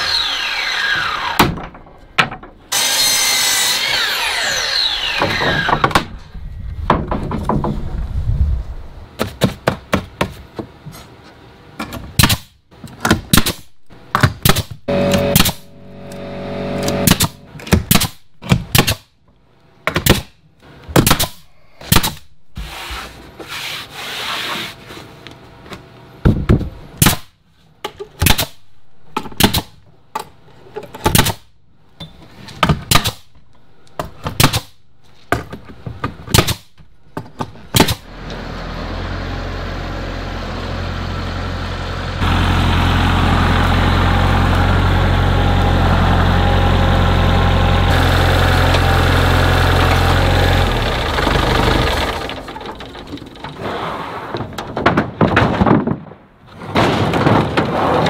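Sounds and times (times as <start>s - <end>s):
nail gun firing: 14.3s - 15.7s, 16.8s - 19.1s, 29.4s - 29.7s, 32.9s - 33.3s, 34.3s - 34.8s, 36.3s - 36.7s, 37.7s - 38.1s
tractor diesel engine running: 14.9s - 17.6s, 38.1s - 53.6s.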